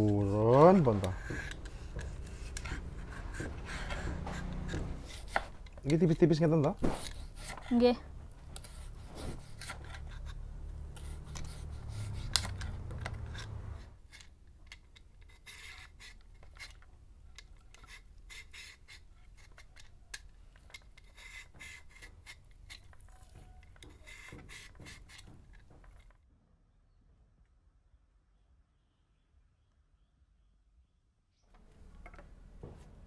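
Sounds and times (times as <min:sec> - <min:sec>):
peeler scraping gourd skin: 0:00.0 - 0:26.1.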